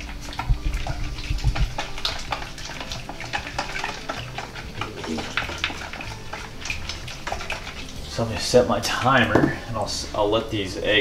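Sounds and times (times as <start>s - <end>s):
metal spoon scraping a bowl: 0.5s - 8.1s.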